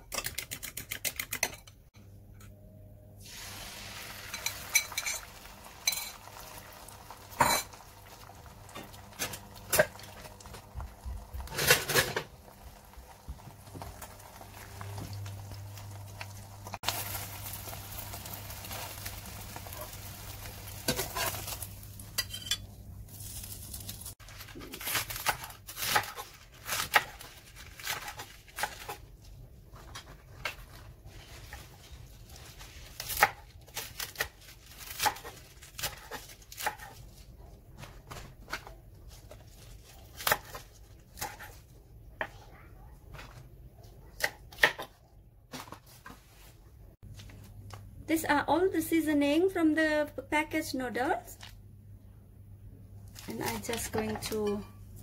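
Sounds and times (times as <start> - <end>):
egg sizzling in frying pan: 3.2 - 10.6, 12.3 - 22.2.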